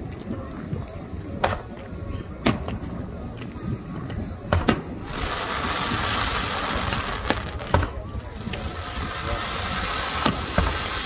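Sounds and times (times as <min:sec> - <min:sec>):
fireworks bursting with bangs: 0:01.4 - 0:11.0
steady hiss: 0:02.6 - 0:11.0.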